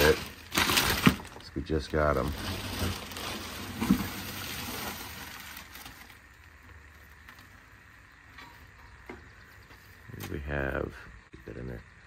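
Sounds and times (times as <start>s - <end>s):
plastic bag rustling: 0.0s - 7.6s.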